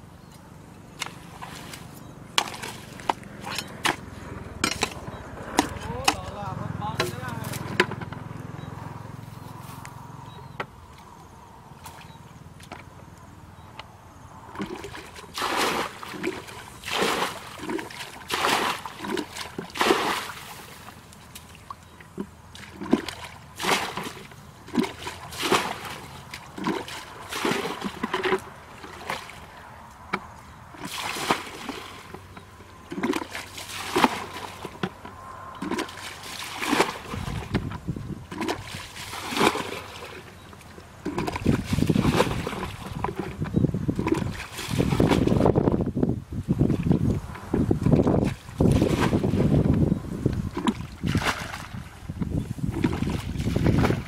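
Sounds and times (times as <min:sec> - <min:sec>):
water sloshing: 0:00.4 - 0:13.8, 0:14.4 - 0:45.9, 0:46.6 - 0:54.0
water splashing from bucket: 0:01.0 - 0:08.0, 0:14.5 - 0:29.5, 0:30.8 - 0:45.8, 0:46.7 - 0:49.8, 0:50.4 - 0:54.0.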